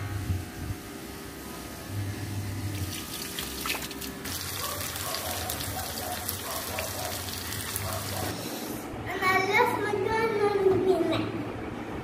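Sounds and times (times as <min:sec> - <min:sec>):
water splashing into bucket: 0:02.7 - 0:08.3.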